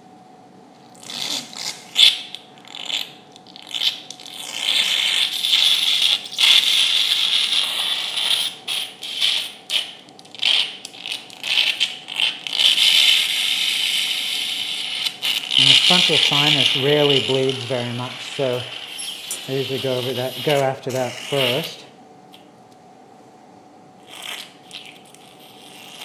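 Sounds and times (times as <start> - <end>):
surgical instruments hissing and scraping: 1.0 - 21.9, 24.0 - 26.0.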